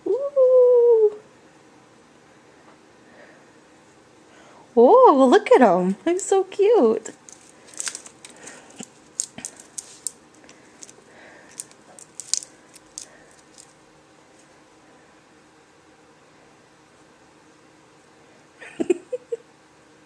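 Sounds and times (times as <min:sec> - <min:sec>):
small crunches: 0:07.1 - 0:14.5.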